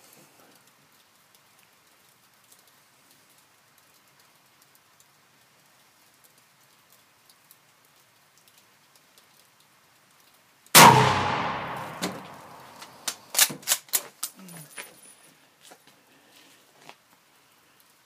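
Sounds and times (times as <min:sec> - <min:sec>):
rifle shot with echo: 0:10.8 - 0:13.2
rifle bolt metallic clacks: 0:10.8 - 0:14.4.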